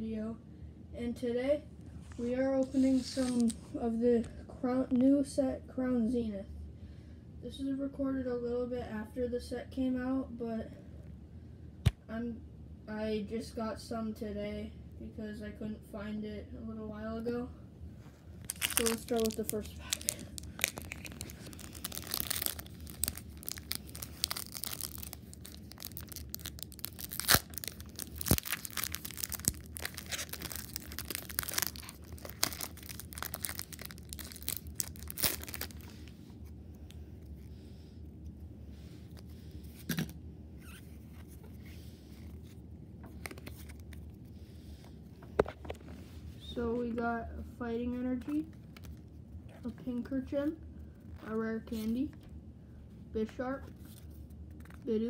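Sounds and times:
cards rustling: 2.7 - 3.6, 18.4 - 36.2, 41.0 - 44.0
foil wrapper crinkling and tearing: 18.4 - 36.1.

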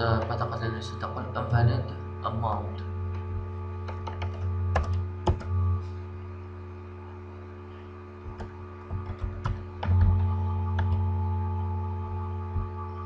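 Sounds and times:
electrical hum: 0.0 - 13.0
keyboard keys clicking: 3.8 - 5.5, 8.2 - 11.0.

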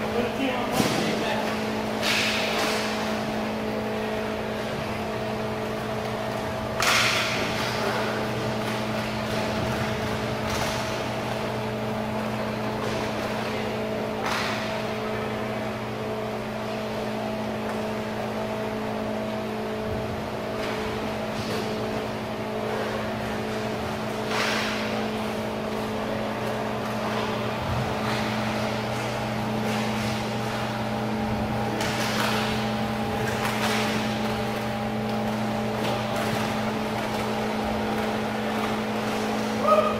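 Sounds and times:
ventilation machine hum: 0.0 - 39.9
faint knocks of sticks and skates: 31.7 - 39.8.

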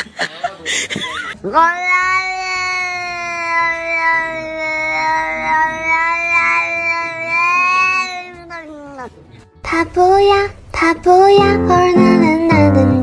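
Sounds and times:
cat meowing: 1.4 - 9.2.

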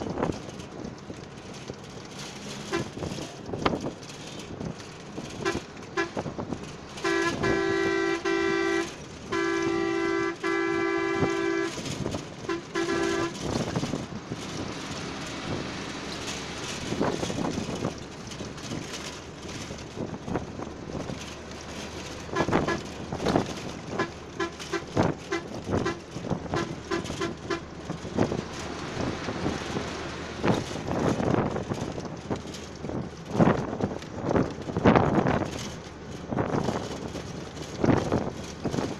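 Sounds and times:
road and wind noise: 0.0 - 38.9
vehicle horn honking: 2.7 - 3.0, 5.4 - 6.3, 7.0 - 13.6, 22.3 - 22.9, 23.9 - 27.7.

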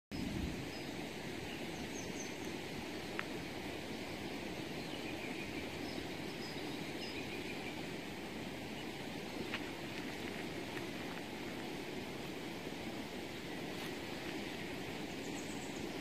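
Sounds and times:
low outdoor rumble: 7.5 - 16.0.

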